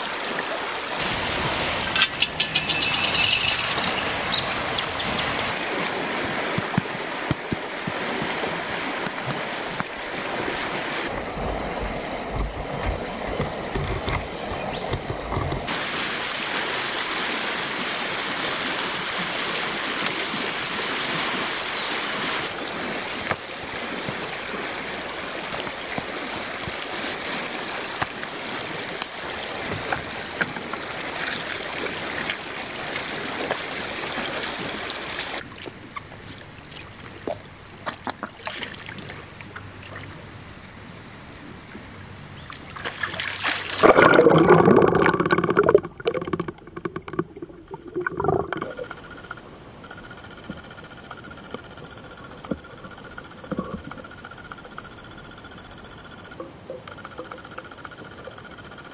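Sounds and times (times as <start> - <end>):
flowing river water: 0.0 - 58.9
person splashing into river: 42.9 - 48.8.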